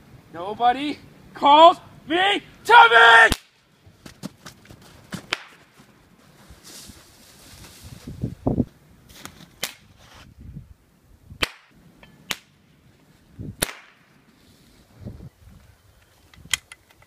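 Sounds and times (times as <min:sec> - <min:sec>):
gunshot cracks: 0:13.6 - 0:14.0.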